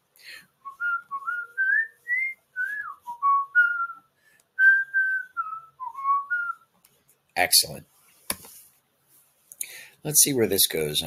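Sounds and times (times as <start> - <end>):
person whistling a tune: 0.6 - 6.7.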